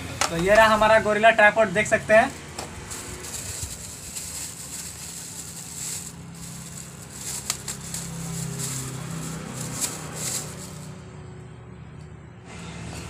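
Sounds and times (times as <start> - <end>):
plastic wrapping crinkling: 2.3 - 10.9.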